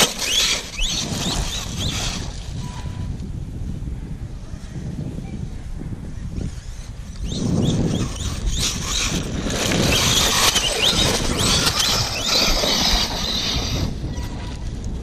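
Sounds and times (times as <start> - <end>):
tyres tearing through grass and dirt: 0.0 - 2.6, 6.5 - 14.0
electric motor whining: 0.0 - 3.0, 6.4 - 14.6.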